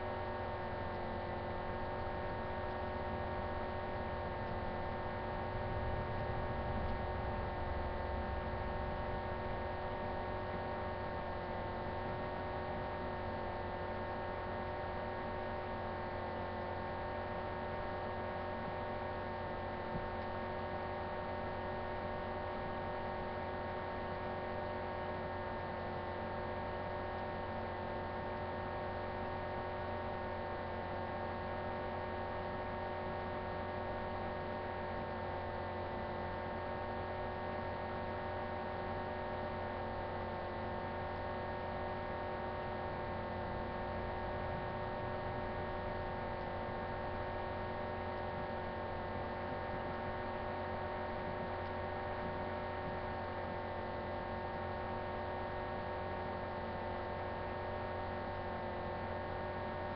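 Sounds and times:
electrical hum: 0:00.0 - 0:59.9.

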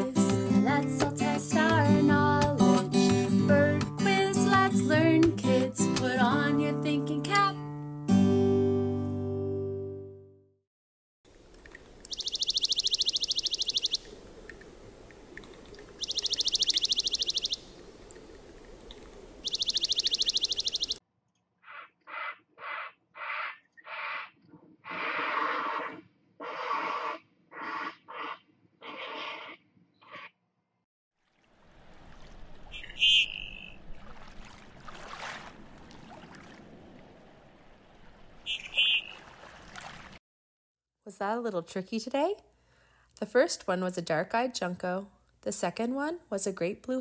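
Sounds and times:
heron croaking: 0:11.8 - 0:21.0, 0:21.6 - 0:30.3, 0:32.7 - 0:33.9, 0:38.4 - 0:39.5
bird trilling: 0:12.0 - 0:14.2, 0:15.9 - 0:18.0, 0:19.4 - 0:21.0, 0:32.6 - 0:34.0, 0:38.4 - 0:39.4
duck calling high notes: 0:32.7 - 0:33.8, 0:38.5 - 0:39.3.

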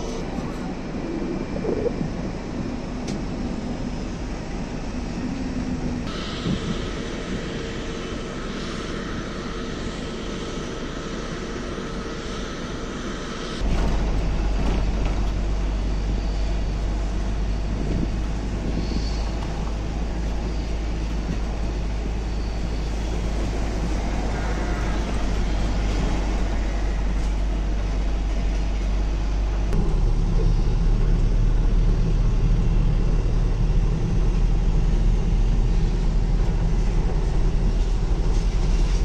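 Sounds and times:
jet aircraft hum and whine: 0:00.0 - 0:39.0
vehicle driving rumble: 0:13.0 - 0:39.0.

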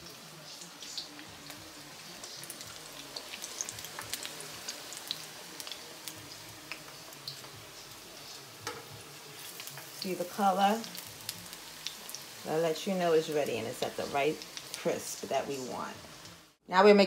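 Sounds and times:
food sizzling in hot oil: 0:00.0 - 0:16.6.

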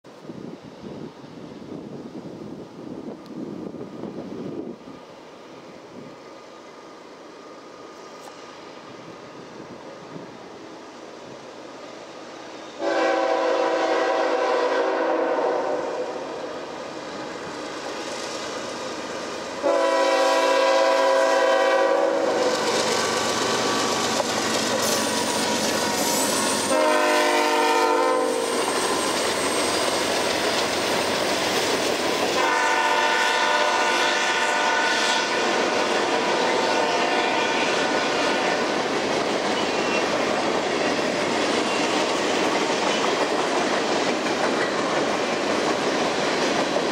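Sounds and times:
train air horn: 0:12.8 - 0:16.5, 0:19.6 - 0:22.7, 0:25.8 - 0:29.7, 0:32.3 - 0:38.7.

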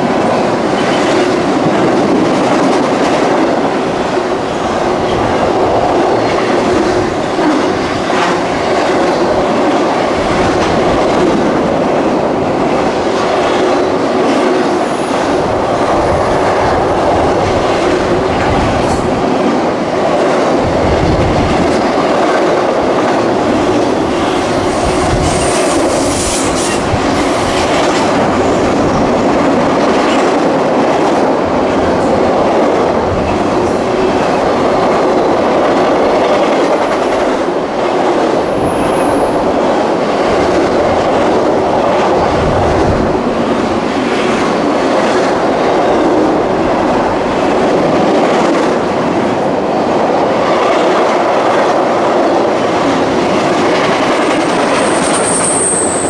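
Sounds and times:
freight train wheels rumbling: 0:00.0 - 0:56.0
high wheel squeal: 0:54.6 - 0:56.0.

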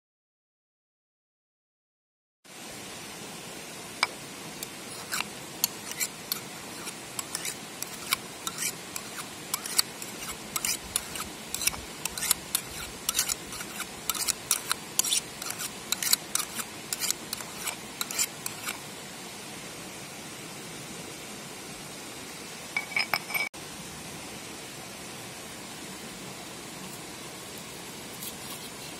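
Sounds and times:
metal blade scraping ceramic pot: 0:04.0 - 0:18.8, 0:22.8 - 0:23.5.

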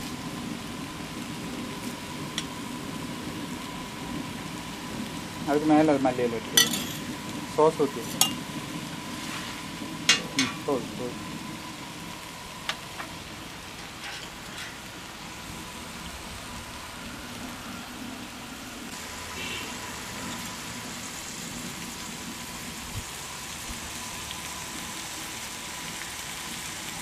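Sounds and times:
meat sizzling on griddle: 0:00.0 - 0:27.0
spoon clinking steel bowl: 0:06.6 - 0:07.0, 0:08.1 - 0:08.4.

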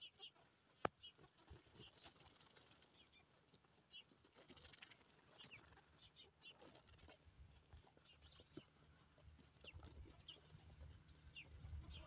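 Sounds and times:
faint high bird chirps: 0:00.0 - 0:00.4, 0:09.6 - 0:12.0
birds scratching in dry earth: 0:00.0 - 0:12.0.

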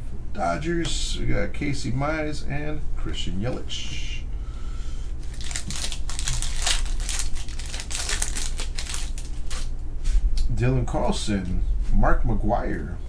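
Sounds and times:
card pack wrappers crinkling: 0:05.2 - 0:09.7.

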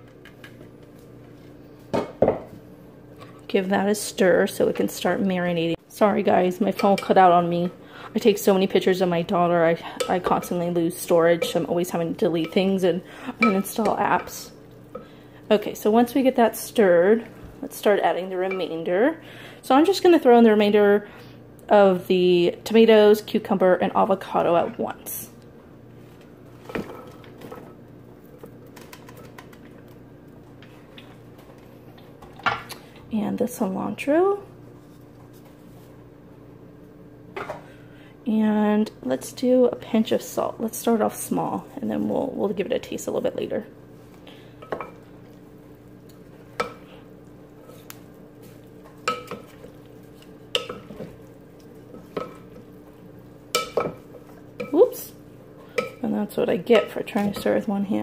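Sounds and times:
steady low hum: 0:00.0 - 0:58.0
spoon stirring food: 0:44.6 - 0:57.6.

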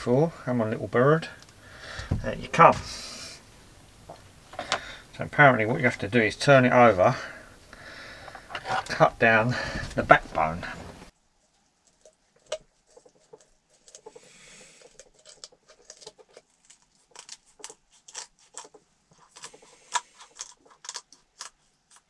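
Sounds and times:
bones cracking: 0:11.8 - 0:22.0.

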